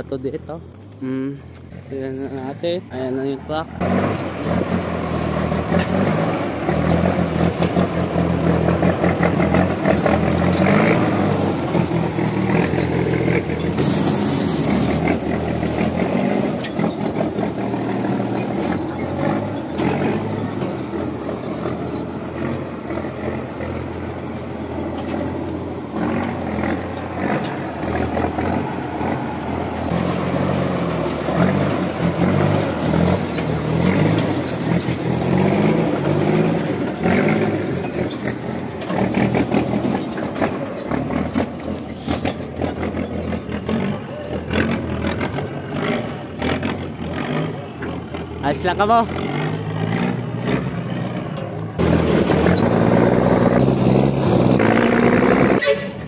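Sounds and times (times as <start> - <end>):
truck engine running: 0.0 - 56.0.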